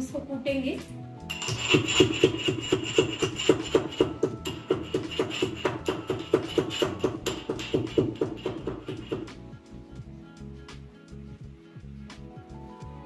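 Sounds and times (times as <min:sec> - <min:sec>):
pestle striking metal mortar: 0:01.3 - 0:09.5.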